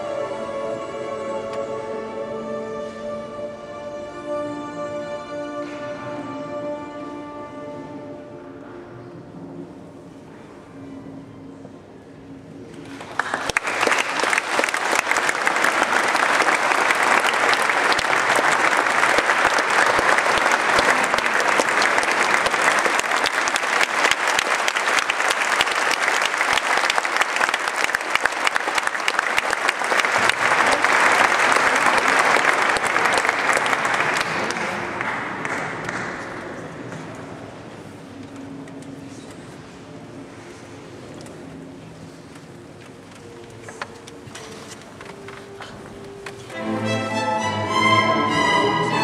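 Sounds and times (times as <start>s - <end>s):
audience applauding: 12.8s - 36.7s.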